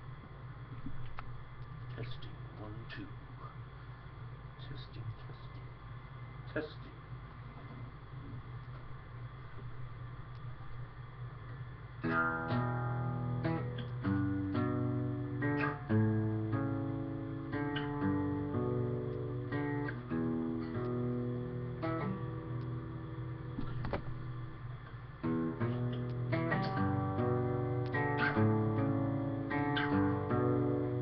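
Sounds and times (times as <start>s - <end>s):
acoustic guitar picked chords: 12.0s - 31.0s.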